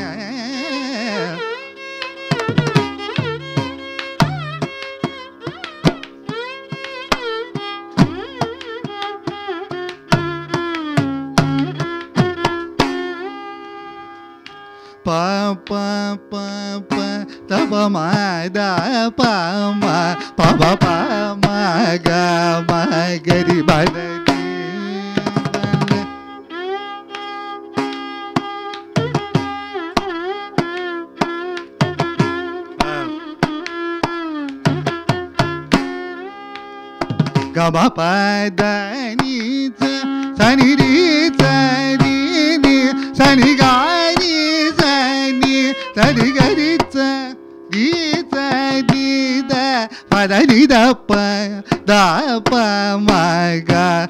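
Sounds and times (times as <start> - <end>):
man singing: 0.0 - 1.6, 15.0 - 26.1, 32.8 - 33.2, 37.5 - 54.0
mridangam drum strokes: 0.0 - 13.4, 17.0 - 54.0
violin: 0.0 - 54.0.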